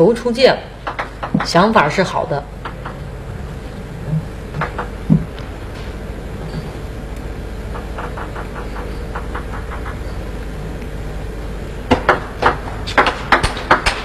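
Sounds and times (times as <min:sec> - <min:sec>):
hall background noise: 0:00.0 - 0:13.3.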